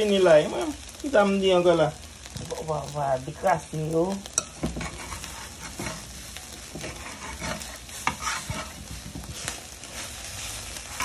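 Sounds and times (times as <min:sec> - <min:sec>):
eggs sizzling in a pan: 0:00.0 - 0:11.0
metal spoon scraping a pan: 0:02.5 - 0:11.0.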